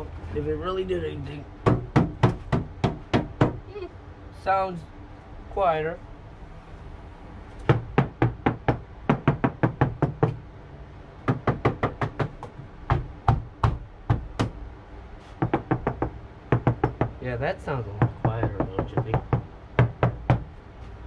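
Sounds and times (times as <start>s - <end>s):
hand knocking on padded panel: 1.6s - 3.6s, 11.3s - 14.6s, 15.4s - 17.1s, 18.0s - 20.5s.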